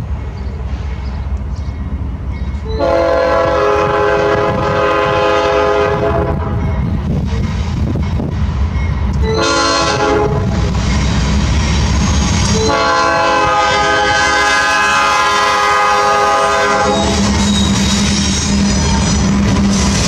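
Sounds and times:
low rumble of locomotives: 0.0 - 20.0
locomotive air horn blasts: 2.7 - 6.6, 9.2 - 10.7, 12.5 - 17.4.

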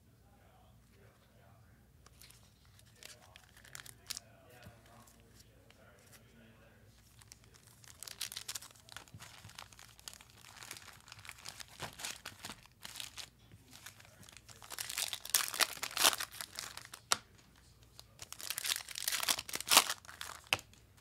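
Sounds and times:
plastic wrapping crinkling and tearing: 2.1 - 4.2, 7.0 - 17.3, 17.9 - 20.8.

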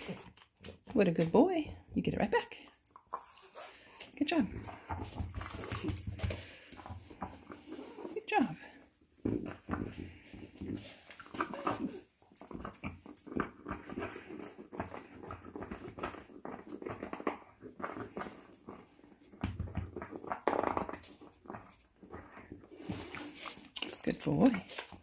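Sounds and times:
dog noises: 2.6 - 19.2
dog gnawing on bone: 9.2 - 25.0.

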